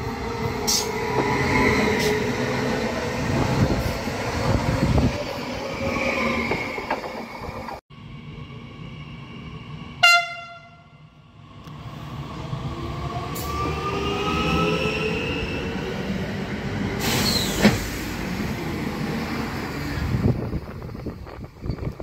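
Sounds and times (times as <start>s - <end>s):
train wheels rumbling on rail: 11.6s - 22.0s.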